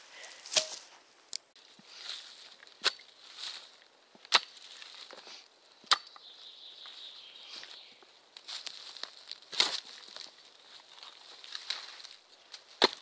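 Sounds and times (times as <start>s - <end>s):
shovel chopping into soil: 0.4s - 0.9s, 4.3s - 4.8s, 12.8s - 13.0s
soil scraping and crumbling: 1.6s - 5.5s, 7.6s - 13.0s.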